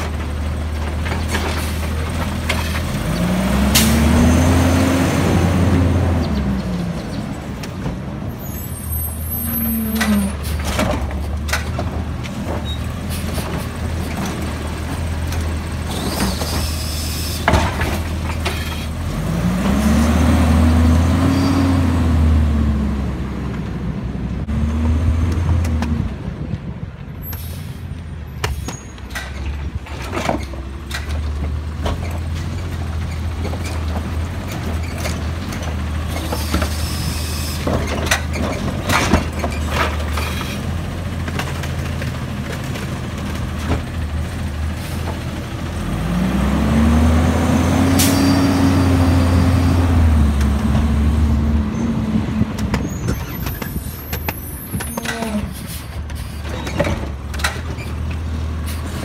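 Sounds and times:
garbage truck engine revving: 0:00.1 - 0:07.1, 0:12.9 - 0:23.5, 0:31.1 - 0:54.4.

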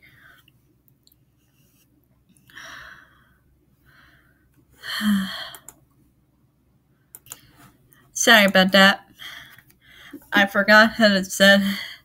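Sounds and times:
woman breathing: 0:00.0 - 0:00.6, 0:02.4 - 0:05.8, 0:09.1 - 0:10.4, 0:11.5 - 0:12.0.

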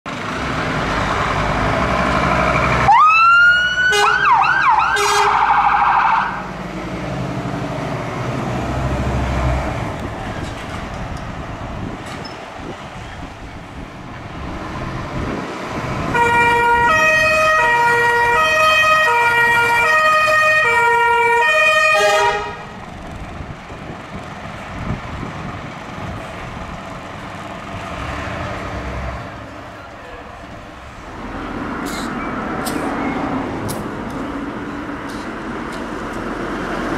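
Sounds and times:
fire engine running: 0:00.1 - 0:36.9
two-tone siren: 0:02.9 - 0:06.5, 0:16.2 - 0:22.6.

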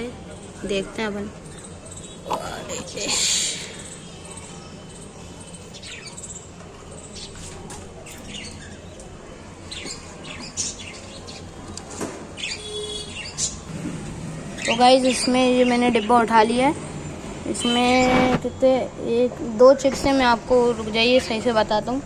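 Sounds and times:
budgerigars chirping: 0:12.4 - 0:13.7.

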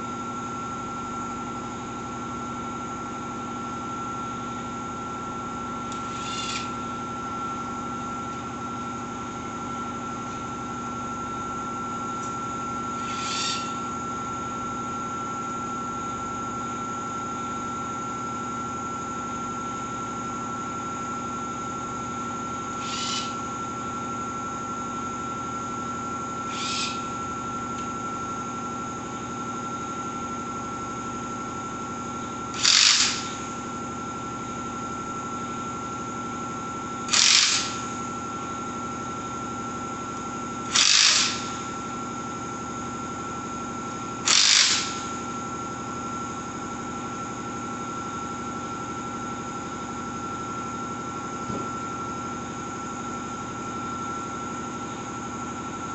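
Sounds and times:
background hum with high whine: 0:00.0 - 0:55.9
cordless drill running: 0:05.9 - 0:07.4, 0:12.8 - 0:14.0, 0:22.7 - 0:23.5, 0:26.4 - 0:27.4, 0:32.5 - 0:33.7, 0:37.0 - 0:38.5, 0:40.6 - 0:42.0, 0:43.8 - 0:45.4.

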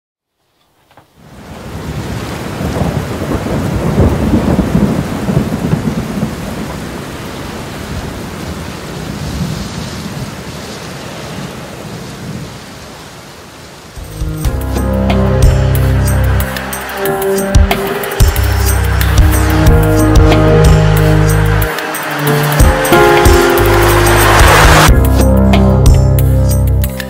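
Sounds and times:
rain: 0:00.3 - 0:25.1
thunder rumbling: 0:01.4 - 0:10.5, 0:14.0 - 0:25.1.

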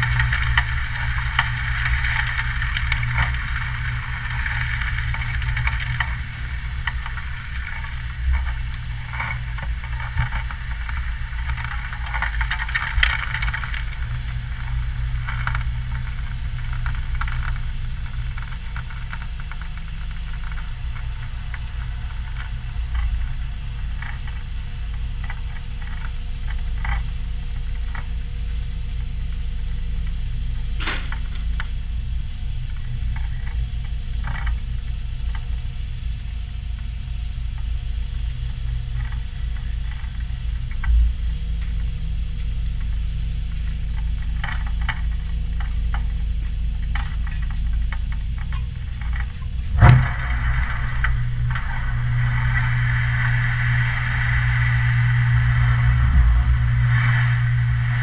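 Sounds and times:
low engine rumble: 0:00.0 - 0:58.0
rattles and knocks: 0:30.8 - 0:31.6.

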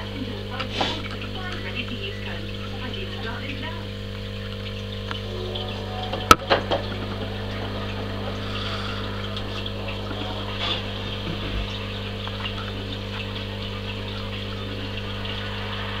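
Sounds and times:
aquarium pump humming: 0:00.0 - 0:16.0
water hissing: 0:05.2 - 0:16.0.

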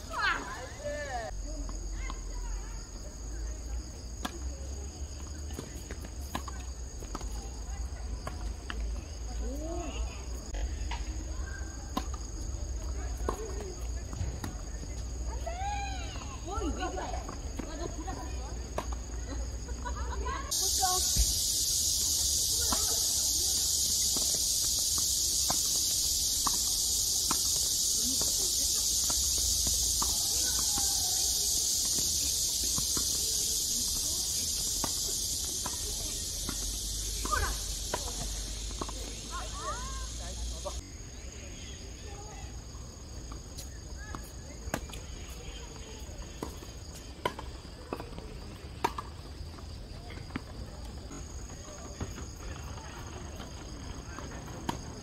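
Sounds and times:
tennis balls struck by rackets: 0:11.8 - 0:14.9, 0:16.2 - 0:19.2, 0:25.3 - 0:33.2
high-pitched insect drone: 0:20.5 - 0:41.0
tennis balls bouncing on hard court: 0:26.4 - 0:33.3.

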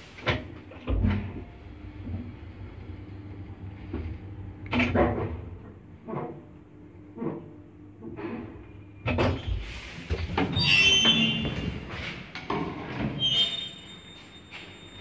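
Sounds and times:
lift squeal: 0:10.5 - 0:11.6, 0:13.2 - 0:15.0.

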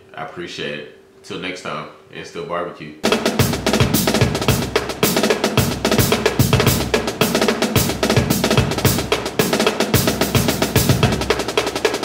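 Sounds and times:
fast drum beat: 0:03.0 - 0:12.0.

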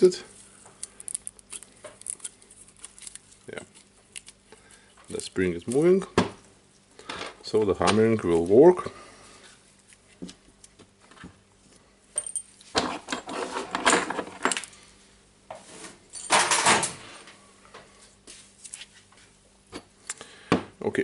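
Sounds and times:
metal tools clinking on wood: 0:12.2 - 0:14.7.

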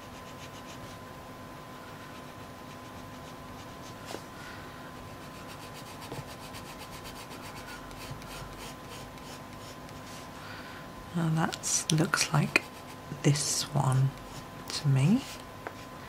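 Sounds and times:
pencil scratching on paper: 0:00.0 - 0:01.0, 0:02.1 - 0:04.2, 0:05.2 - 0:10.4, 0:12.4 - 0:13.6, 0:15.1 - 0:15.9.

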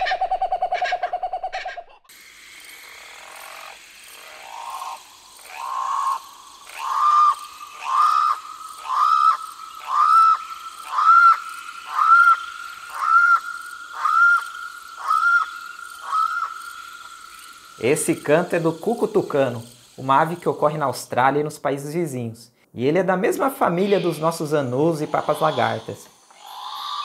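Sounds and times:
cuckoo calling rising notes: 0:04.2 - 0:18.8.

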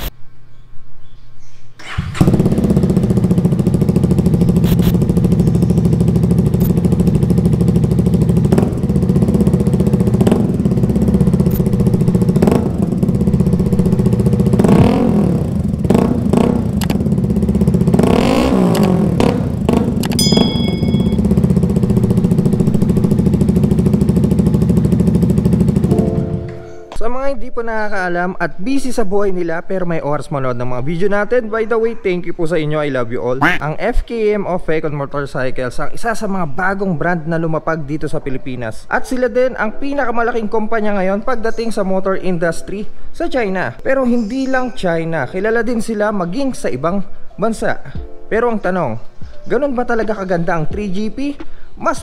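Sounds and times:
engine revving: 0:01.8 - 0:26.0
engine starting and idling: 0:01.8 - 0:26.5.

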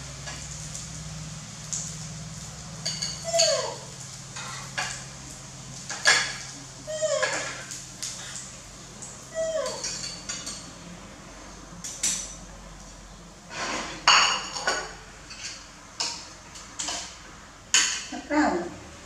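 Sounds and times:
metal spoon clinking on ceramic plates: 0:02.8 - 0:03.8, 0:09.6 - 0:10.7, 0:14.1 - 0:17.1.

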